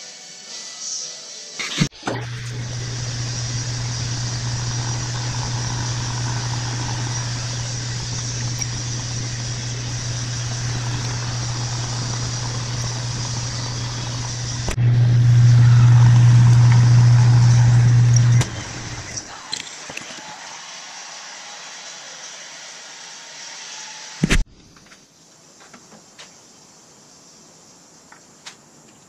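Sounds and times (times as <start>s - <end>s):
drill cutting metal: 1.9s - 24.2s
lathe motor hum: 2.0s - 19.3s.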